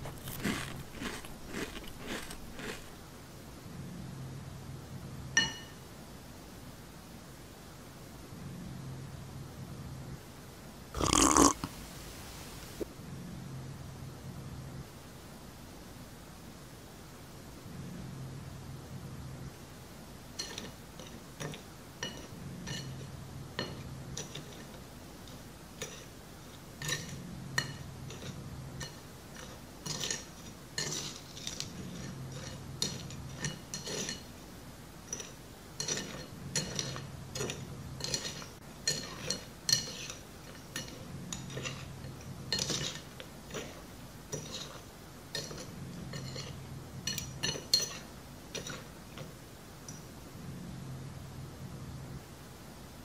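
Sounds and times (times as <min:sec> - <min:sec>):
metal spoon scraping ceramic plate: 0:28.1 - 0:34.2, 0:35.1 - 0:40.2, 0:44.3 - 0:44.8, 0:45.4 - 0:48.0.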